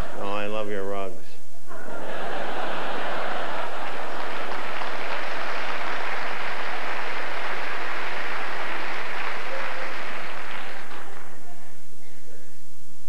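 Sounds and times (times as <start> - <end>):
audience applauding: 2.4 - 11.9.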